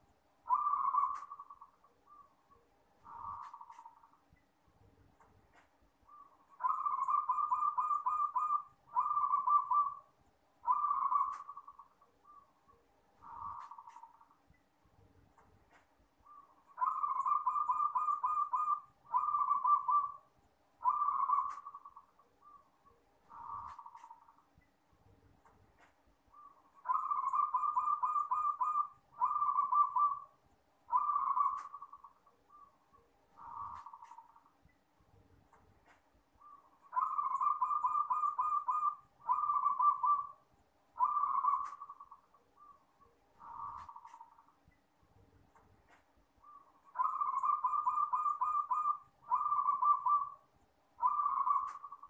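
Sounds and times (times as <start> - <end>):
dove cooing: 0.5 - 2.2, 6.1 - 12.4, 16.3 - 20.2, 20.8 - 22.6, 26.4 - 30.3, 30.9 - 32.7, 33.4 - 34.3, 36.4 - 40.4, 41.0 - 42.8, 43.4 - 44.3, 46.4 - 50.4, 51.0 - 52.0.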